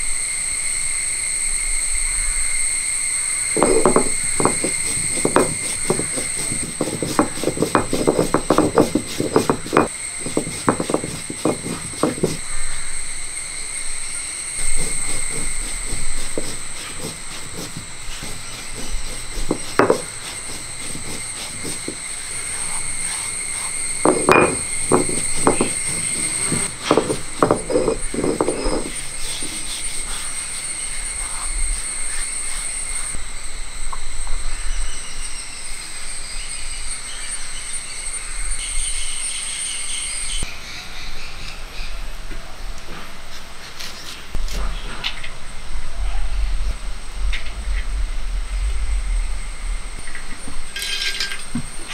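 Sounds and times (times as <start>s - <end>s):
high insect trill: 0.0s - 42.1s, 43.8s - 51.9s
stone roller grinding on stone: 3.6s - 12.4s, 14.6s - 30.1s, 50.0s - 51.9s.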